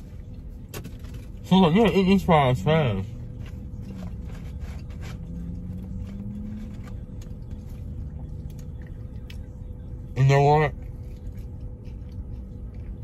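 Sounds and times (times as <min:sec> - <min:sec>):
low hum inside car: 0:00.0 - 0:13.0
person chewing: 0:10.8 - 0:13.0.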